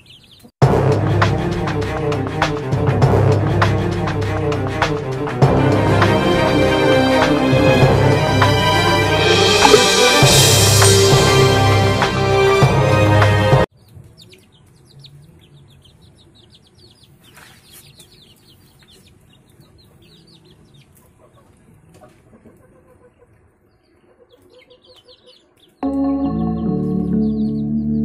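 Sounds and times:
chicks peeping: 0.0s - 0.6s, 13.7s - 28.0s
background music: 0.6s - 13.7s, 25.8s - 28.0s.

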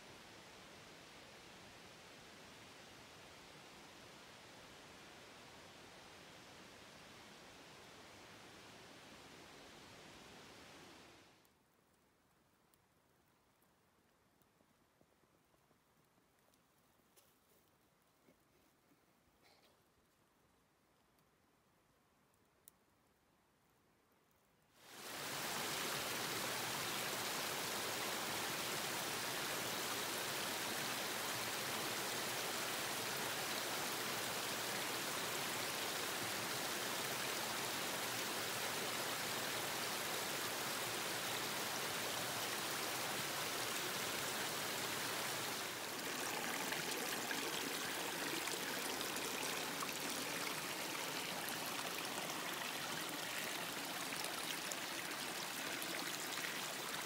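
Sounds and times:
river water rushing: 25.0s - 57.0s.

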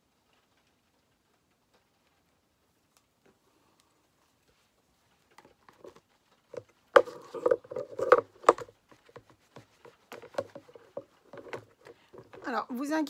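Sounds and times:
craft supplies clicking and knocking: 5.4s - 12.6s
rubbing on a table: 7.0s - 12.5s.

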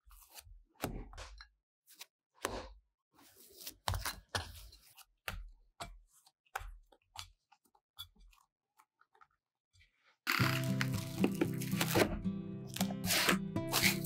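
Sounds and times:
dough kneaded thumps and squishes: 0.0s - 14.0s.

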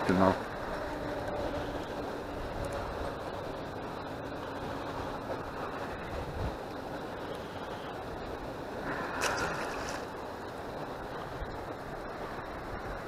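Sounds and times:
wind buffeting microphone: 0.0s - 13.0s
water lapping against rocks: 8.8s - 11.4s.

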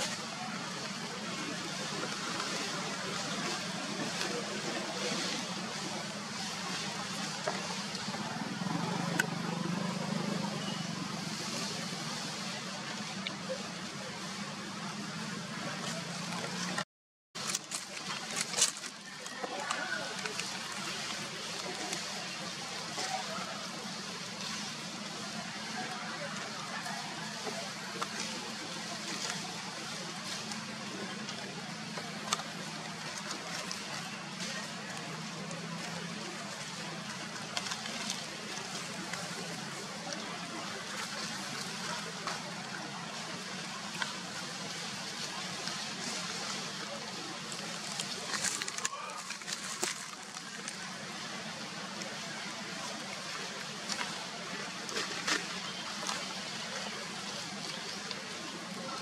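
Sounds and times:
dry leaves crackling: 17.4s - 59.0s.

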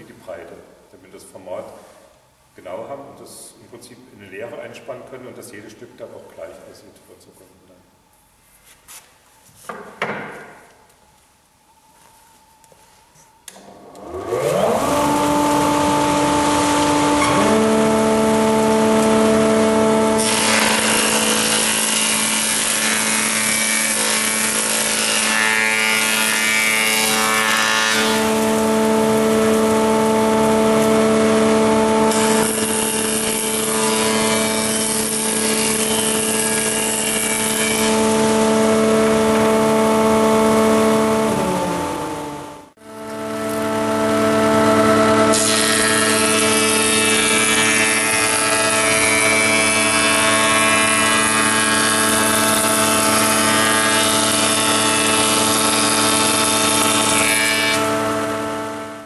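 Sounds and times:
board being planed: 13.5s - 41.8s, 44.8s - 58.0s
jointer-planer whining: 13.5s - 59.0s.

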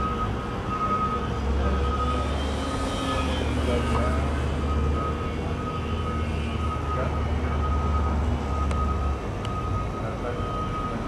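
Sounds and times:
model plane propeller drone: 2.2s - 6.6s.

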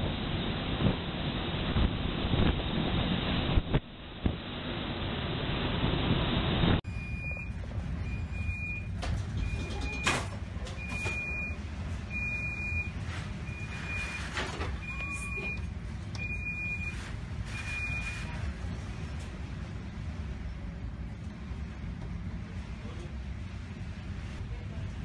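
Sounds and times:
low rumble of storm: 0.0s - 25.0s
electronic alarm beeping: 6.9s - 10.2s, 10.8s - 18.3s.

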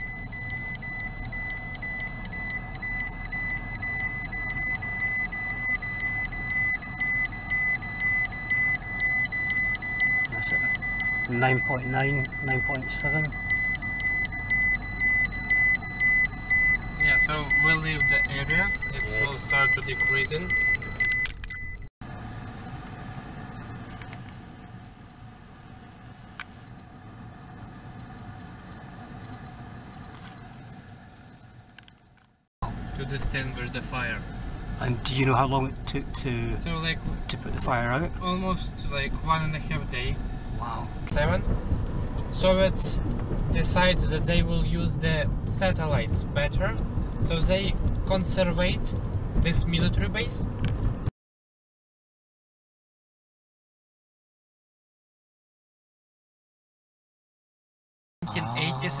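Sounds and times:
dosimeter alarm beeping: 0.0s - 21.9s
low vehicle rumble: 0.0s - 51.1s.

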